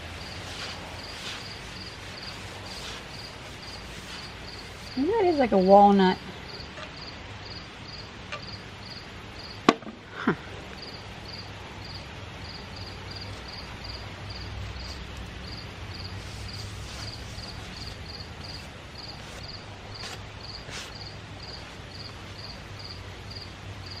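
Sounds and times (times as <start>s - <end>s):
insects chirping: 0.0s - 5.7s, 6.4s - 9.6s, 10.8s - 24.0s
sharp knock: 9.7s - 10.0s.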